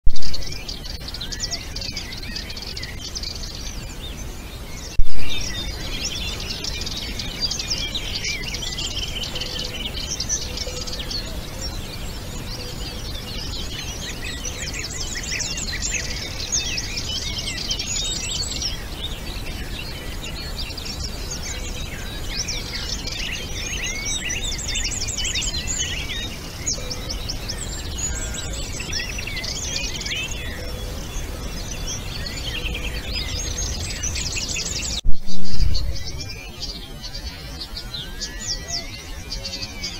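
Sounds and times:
songbirds singing: 0:00.1 - 0:39.9
loud thumps: 0:05.0 - 0:05.5, 0:35.0 - 0:36.1.

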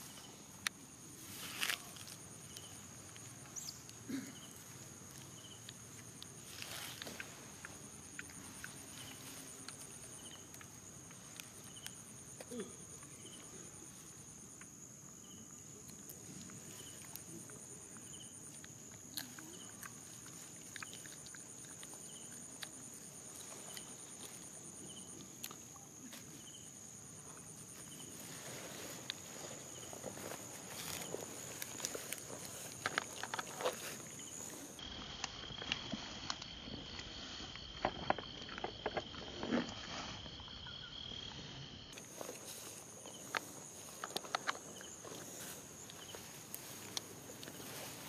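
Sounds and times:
monkeys rustling in grass: 0:00.0 - 0:11.7, 0:27.0 - 0:34.8, 0:41.9 - 0:48.0
insects droning: 0:00.0 - 0:48.0.

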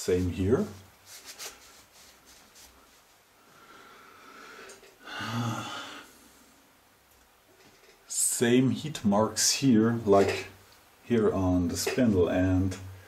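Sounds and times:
person exhaling heavily: 0:03.5 - 0:06.5.

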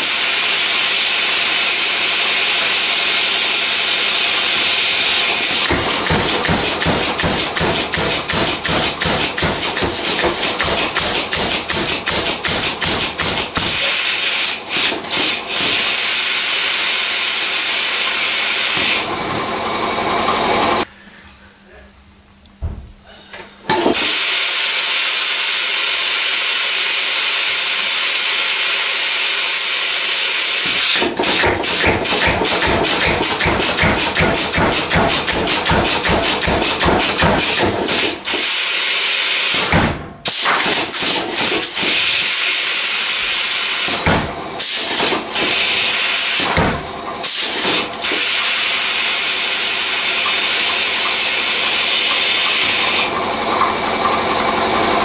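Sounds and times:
power hammer blows: 0:00.0 - 0:19.5, 0:30.3 - 0:55.0
compressed air hissing: 0:47.2 - 0:53.1.

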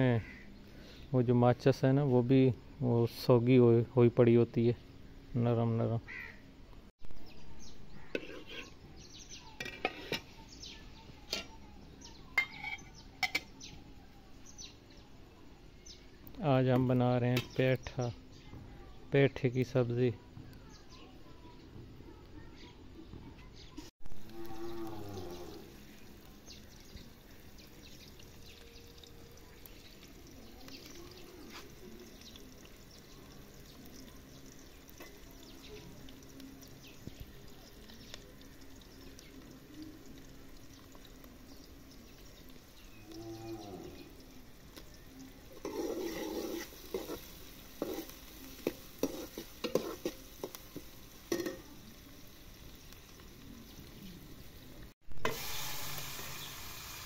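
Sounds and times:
onions sizzling in oil: 0:00.0 - 0:57.0
metal ladle scraping pan: 0:07.9 - 0:08.8, 0:09.6 - 0:10.4, 0:12.4 - 0:13.5, 0:45.5 - 0:50.6
cow mooing: 0:24.2 - 0:25.8, 0:43.1 - 0:44.1.

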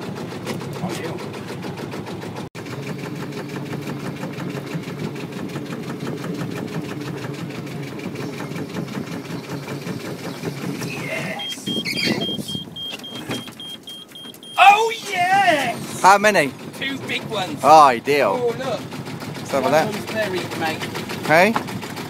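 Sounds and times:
boat engine running: 0:00.0 - 0:22.0
short high beeps: 0:11.2 - 0:14.8.

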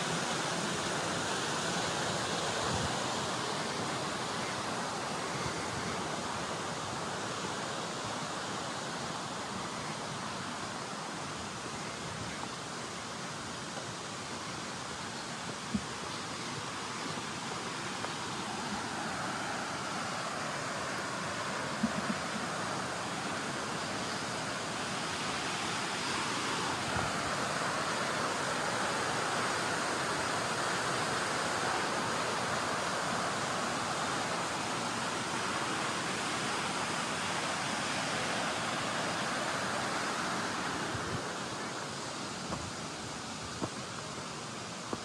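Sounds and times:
running water rushing: 0:00.0 - 0:45.0.

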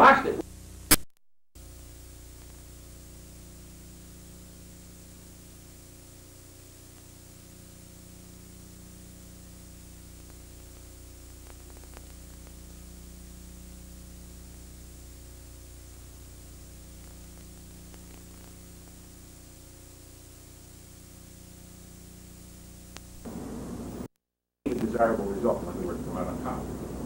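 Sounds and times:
electrical hum and hiss: 0:00.0 - 0:01.0, 0:01.6 - 0:24.1, 0:24.7 - 0:27.0
faint clicks: 0:10.2 - 0:12.6.

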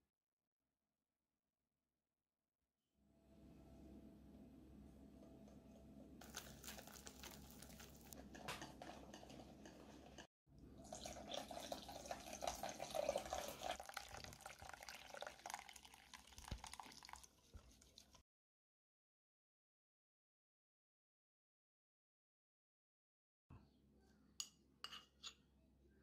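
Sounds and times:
water pouring into batter: 0:06.2 - 0:08.2, 0:10.8 - 0:18.2
whisk beating batter in a bowl: 0:06.3 - 0:10.3.

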